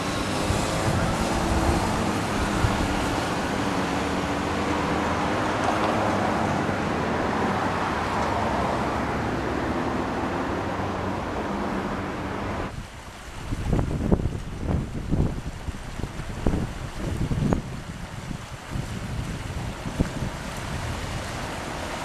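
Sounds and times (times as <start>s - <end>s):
motor traffic with engine hum: 0.0s - 22.0s.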